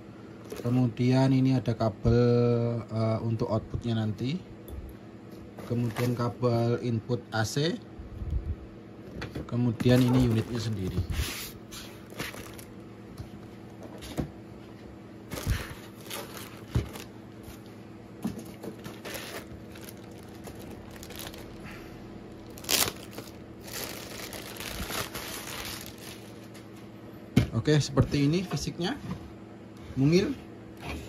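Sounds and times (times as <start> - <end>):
plastic bag crinkling: 9.8 - 11.0, 11.8 - 12.8, 15.3 - 17.2, 18.5 - 26.5
cardboard and foam packaging handled: 9.8 - 12.8, 15.3 - 17.6, 18.3 - 21.7, 22.4 - 26.6.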